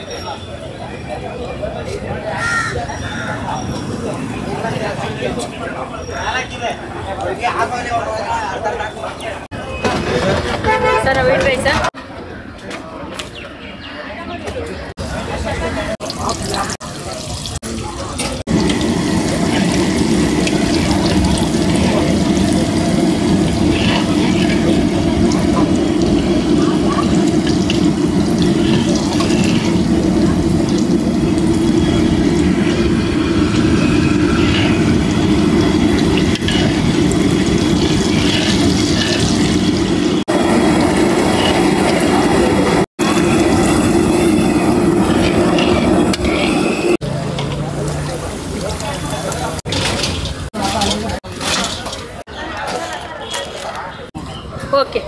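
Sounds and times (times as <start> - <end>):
fritters sizzling in hot oil: 15.0 - 52.3
metal skimmer stirring: 18.5 - 47.6, 49.6 - 52.9.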